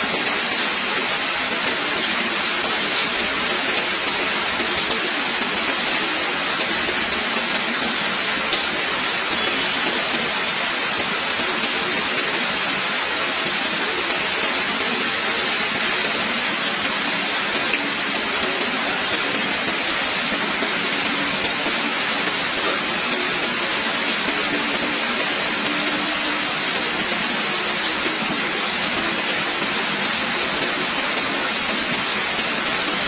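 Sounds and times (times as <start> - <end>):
heavy rain falling: 0.0 - 33.0.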